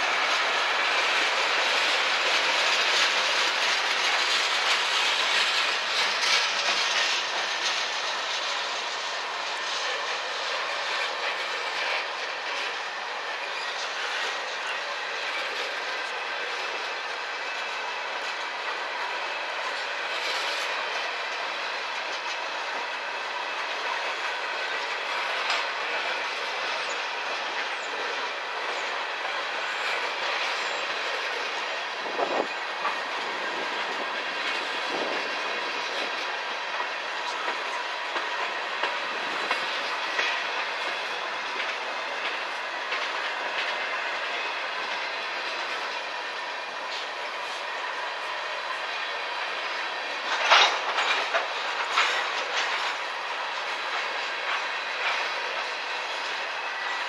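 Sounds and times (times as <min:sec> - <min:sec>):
train wheels rumbling on rail: 0:00.0 - 0:57.0
wheels clicking over rail joints: 0:00.0 - 0:57.0.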